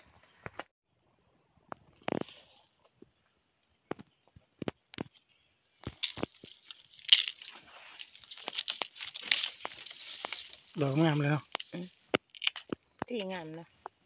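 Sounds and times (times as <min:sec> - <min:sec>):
leaves and twigs rustling: 0:03.9 - 0:14.0.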